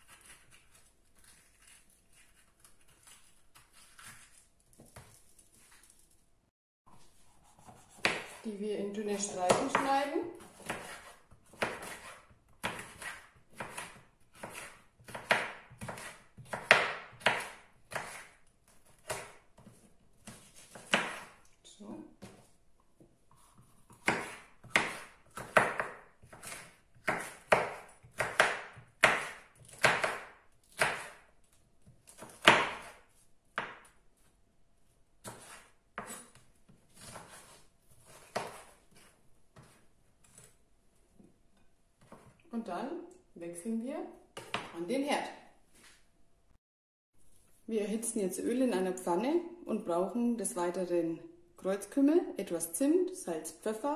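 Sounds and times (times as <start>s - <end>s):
knife slicing on wooden board: 10.4s - 21.4s, 23.4s - 31.2s, 35.2s - 40.6s.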